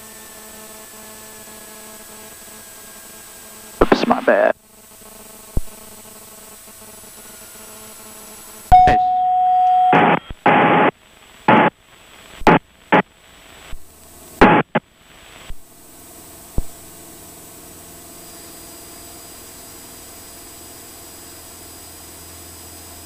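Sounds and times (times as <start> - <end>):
steady low hum: 0.0 - 11.8
radio click: 3.8 - 4.5, 11.5 - 11.7
radio transmission bursts: 3.8 - 4.6, 9.9 - 10.9, 11.5 - 11.8, 14.4 - 14.8
steady tone: 8.7 - 10.9.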